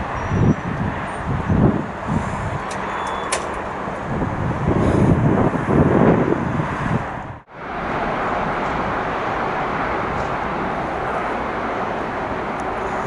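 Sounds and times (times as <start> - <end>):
wind on microphone: 0.0 - 13.0.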